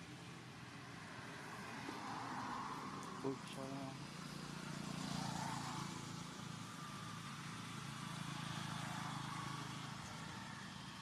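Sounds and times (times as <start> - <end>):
road noise: 0.0 - 11.0
vehicle engine running: 2.8 - 11.0.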